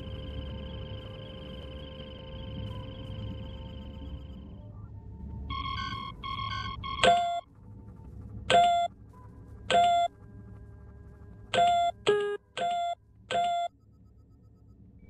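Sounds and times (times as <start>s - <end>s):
faint electronic hum: 0.0s - 15.0s
short electronic beeps: 9.7s - 10.1s, 11.6s - 14.2s.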